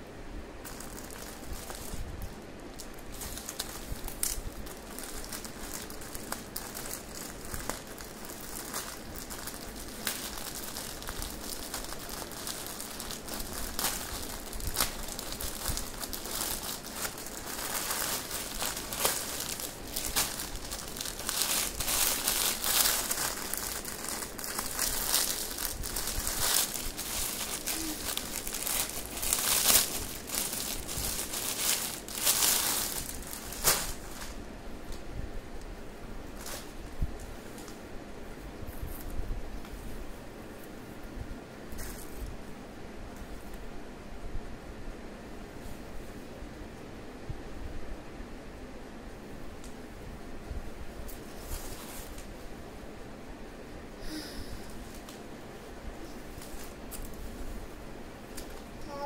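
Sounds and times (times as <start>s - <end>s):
plastic wrapping crinkling: 0.6s - 35.1s, 36.2s - 37.8s, 51.0s - 52.5s, 54.1s - 59.0s.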